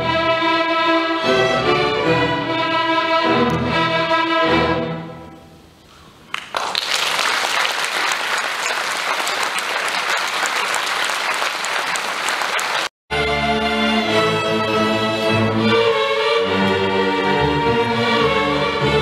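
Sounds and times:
audience applause: 6.3s - 12.9s.

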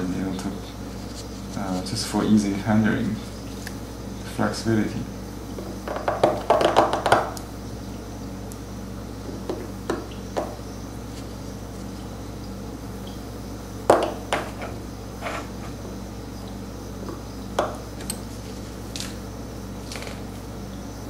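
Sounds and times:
steady low hum: 0.0s - 21.0s
knife scraping stone: 14.5s - 15.8s.

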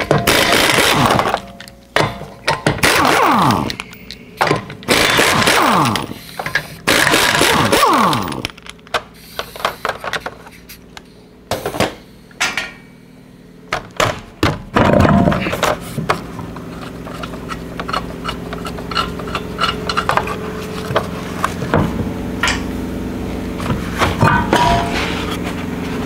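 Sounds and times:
steady low hum: 0.0s - 26.0s
air impact wrench bursts: 2.8s - 11.0s
small metallic clicks and scrapes: 16.6s - 21.1s.

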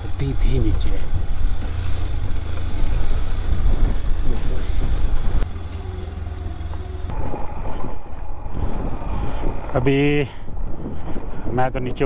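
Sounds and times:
wind rumble on microphone: 0.0s - 5.5s, 6.7s - 12.0s
motorcycle riding on rocky track: 0.0s - 12.0s.

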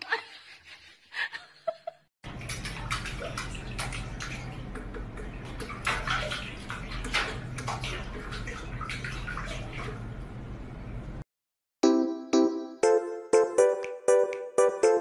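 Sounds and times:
water sloshing in a sink: 2.3s - 11.2s.

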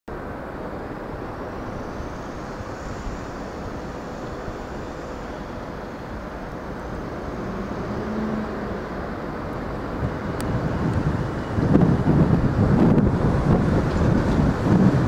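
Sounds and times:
faint high hiss: 0.1s - 10.4s
electric train rumble: 0.1s - 15.0s
wind on microphone: 0.1s - 15.0s.

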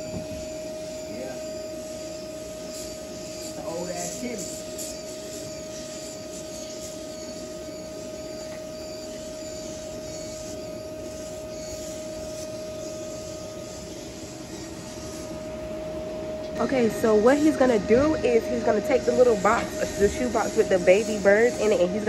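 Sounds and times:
machine drone with whine: 0.0s - 22.0s.

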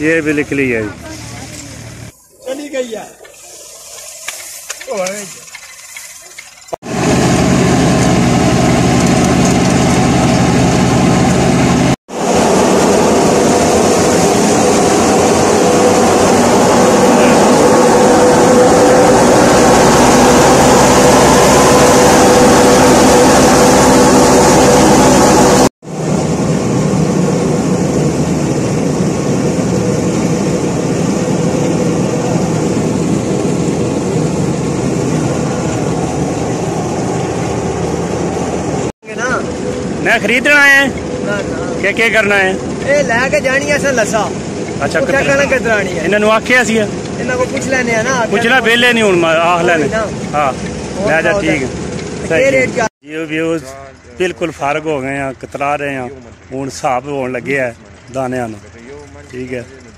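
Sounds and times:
voices: 0.0s - 3.3s, 16.0s - 19.6s, 39.0s - 59.9s
tractor engine: 0.0s - 59.9s
thresher machine running: 4.7s - 59.9s.

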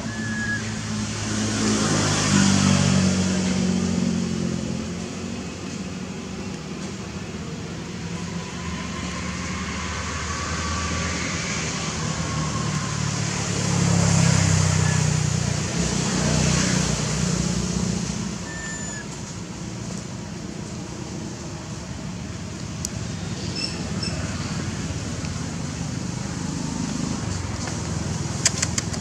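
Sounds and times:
vehicle engine humming: 0.0s - 29.0s
short high chirps: 0.1s - 0.7s, 18.4s - 19.0s.

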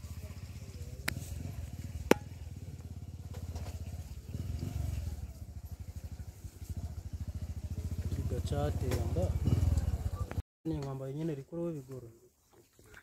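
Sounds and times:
small engine running: 0.0s - 10.4s.

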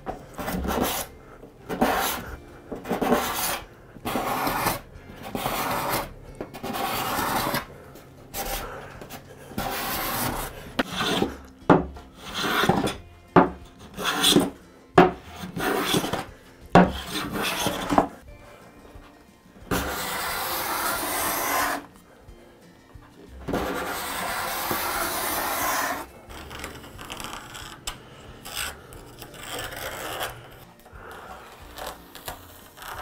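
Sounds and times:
card scraper rasping on wood: 0.4s - 1.1s, 1.7s - 7.7s, 8.4s - 11.4s, 12.2s - 18.2s, 19.7s - 21.9s, 23.5s - 27.8s, 28.4s - 30.6s.

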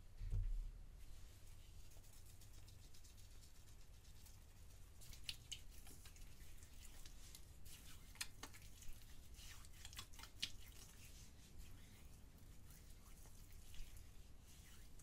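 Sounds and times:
hands rubbing together: 1.5s - 15.0s.

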